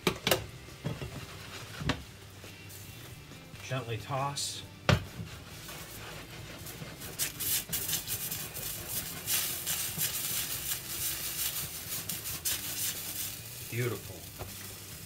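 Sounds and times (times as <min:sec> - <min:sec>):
food sizzling in a skillet: 0:05.4 - 0:15.0.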